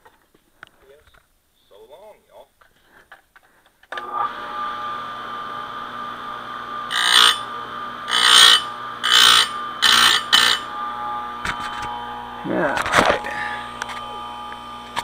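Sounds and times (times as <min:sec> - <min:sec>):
grinder motor humming: 0:04.0 - 0:15.0
grinding wheel on chain: 0:06.9 - 0:07.5, 0:08.1 - 0:10.7.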